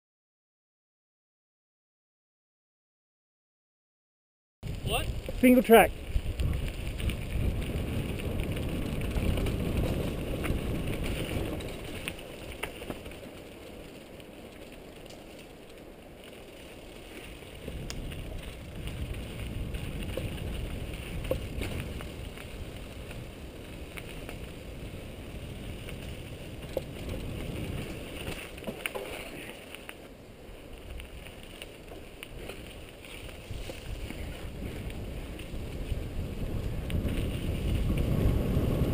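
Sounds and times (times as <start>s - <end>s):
wind buffeting microphone: 4.6s - 13.8s, 17.0s - 38.9s
bike tyre rumble: 4.6s - 38.9s
bike clicks and rattles: 4.7s - 38.9s.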